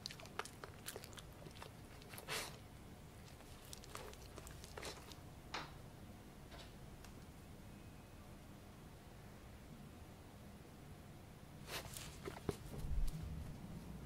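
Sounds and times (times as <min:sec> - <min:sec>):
puppy licking and chewing: 0:00.0 - 0:05.3, 0:11.7 - 0:13.2.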